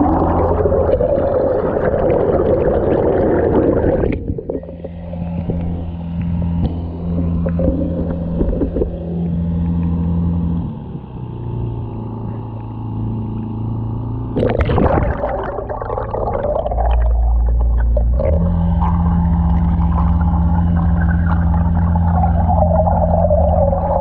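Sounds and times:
water splash: 0:00.0 - 0:09.9, 0:14.4 - 0:24.0
muffled underwater engine rumble: 0:00.0 - 0:24.0
outboard motor running: 0:00.0 - 0:24.0.

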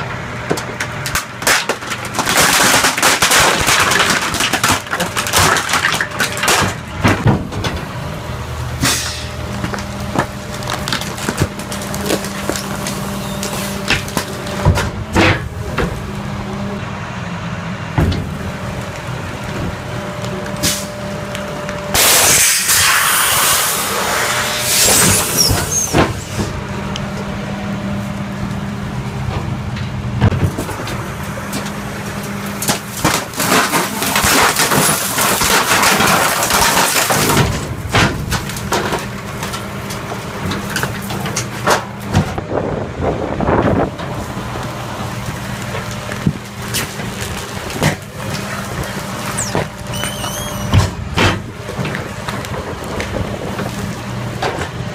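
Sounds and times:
trash cracking and crunching: 0:00.0 - 0:16.8, 0:17.9 - 0:54.9
truck engine and hydraulics running: 0:00.0 - 0:54.9.

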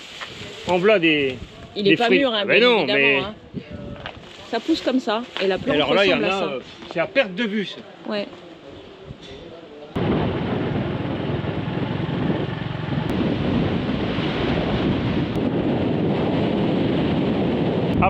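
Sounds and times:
wind buffeting microphone: 0:00.0 - 0:06.3, 0:09.0 - 0:18.0
motorbike engine and road noise: 0:10.0 - 0:15.6.

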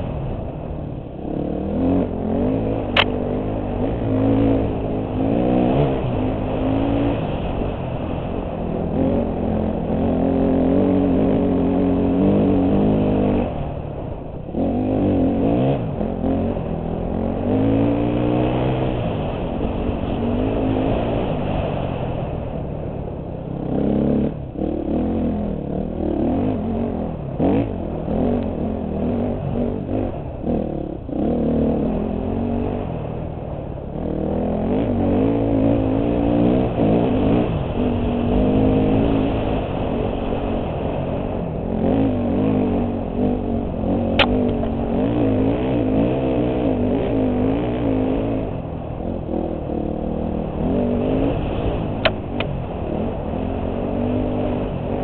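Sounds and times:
dirt bike engine revving: 0:01.2 - 0:22.0, 0:23.6 - 0:55.0
sharp click: 0:02.9 - 0:03.2, 0:44.2 - 0:44.7.

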